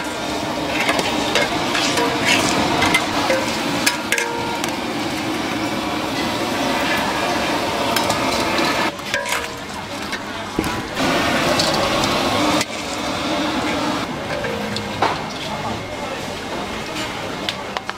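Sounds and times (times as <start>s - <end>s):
spatula scraping a steel wok: 0.0s - 4.1s
shrimp sizzling: 0.0s - 15.7s.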